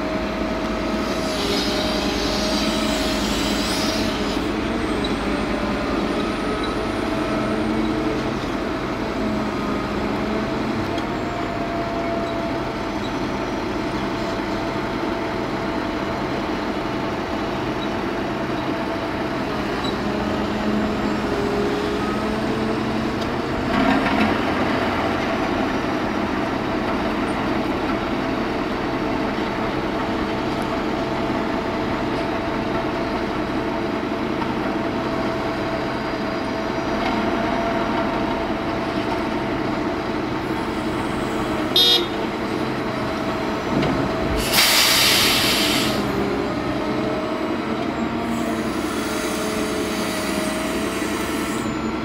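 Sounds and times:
diesel engines running: 0.0s - 52.0s
short hiss: 44.4s - 46.1s.

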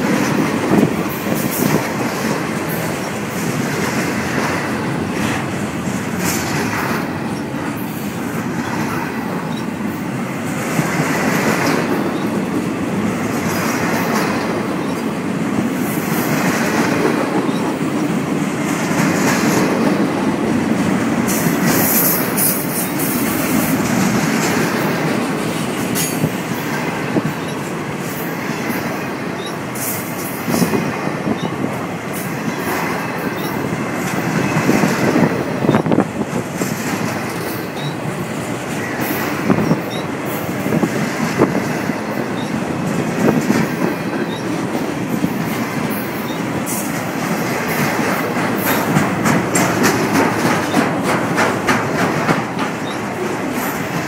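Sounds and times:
train wheels rolling on rail: 0.0s - 54.0s
wheels clacking over rail joints: 0.0s - 54.0s.

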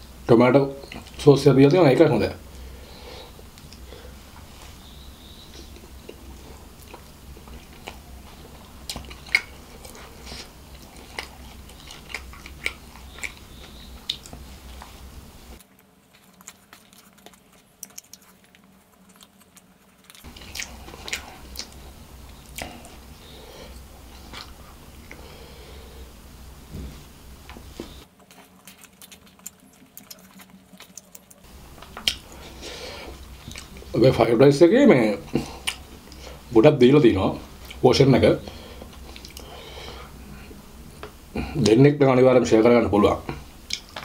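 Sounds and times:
low background hum: 0.0s - 44.0s
person chewing food: 2.6s - 26.2s, 27.4s - 34.0s, 35.3s - 36.5s, 37.4s - 37.8s, 38.4s - 41.7s, 43.3s - 44.0s
wet mouth clicks: 28.2s - 32.4s, 35.6s - 36.2s, 39.0s - 39.5s, 43.7s - 44.0s.

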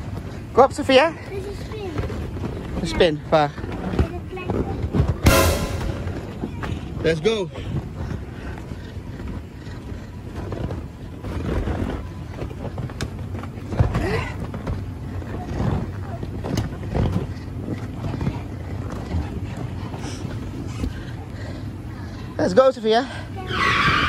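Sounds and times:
steady low rumble: 5.2s - 7.0s.

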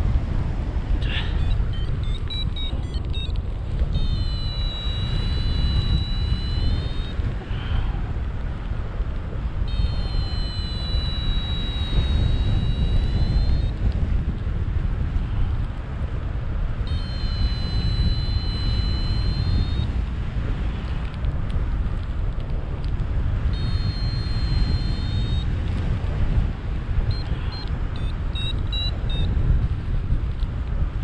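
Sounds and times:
wind buffeting microphone: 0.0s - 31.0s
short beeps: 1.0s - 7.3s, 9.7s - 13.8s, 16.9s - 19.9s, 23.5s - 25.5s, 27.1s - 29.3s
electronic tones: 1.1s - 7.2s, 9.7s - 13.7s, 16.9s - 19.9s, 23.6s - 25.5s, 27.1s - 29.3s.

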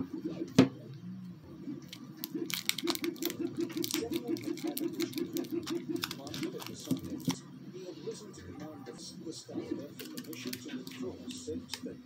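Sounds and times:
plastic tape crinkling: 1.9s - 7.4s, 10.0s - 11.0s.

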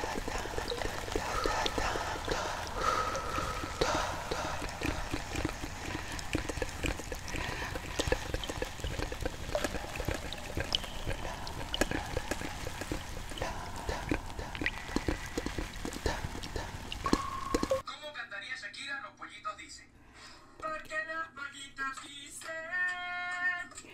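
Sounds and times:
water trickling and dripping: 0.0s - 17.8s.

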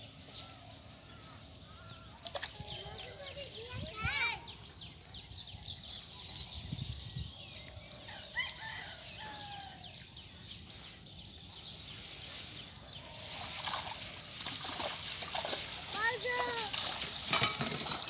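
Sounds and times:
steady high hiss: 11.6s - 15.1s.

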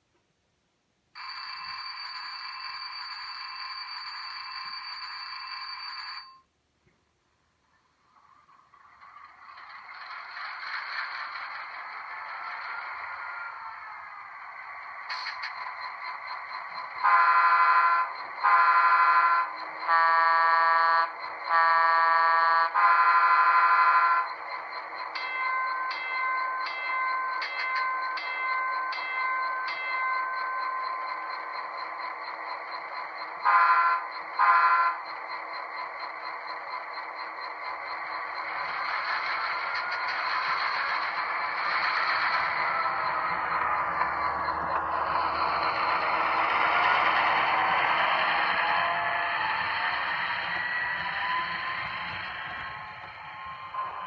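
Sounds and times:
locomotive bell ringing: 1.2s - 6.5s, 22.6s - 54.0s
locomotive air horn blasts: 17.0s - 24.2s, 33.4s - 35.0s
idling engine hum: 35.1s - 54.0s
high thin tones from speaker: 38.2s - 54.0s.

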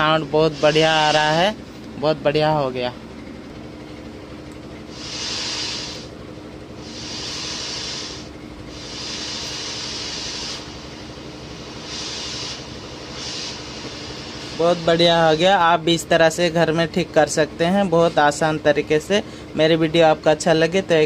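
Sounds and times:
radio static hiss: 0.4s - 1.4s, 5.0s - 6.1s, 6.8s - 15.4s.

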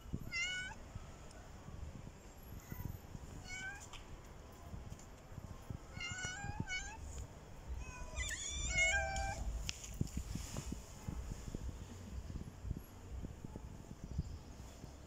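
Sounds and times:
cat meowing: 0.2s - 0.8s, 3.4s - 3.9s, 5.9s - 7.0s, 7.7s - 9.5s.

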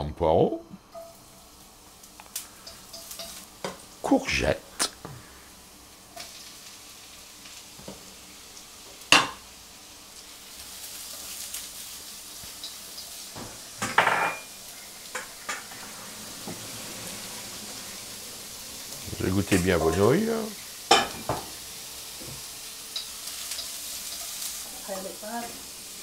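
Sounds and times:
vegetables sizzling in hot oil: 0.8s - 26.0s
utensil clanking against wok: 2.6s - 3.8s.

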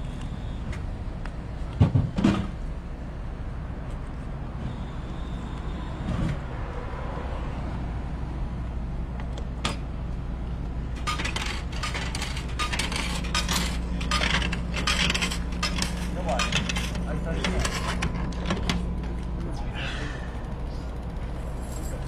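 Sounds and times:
steady low hum: 0.0s - 22.0s
coins clinking: 11.0s - 17.0s.

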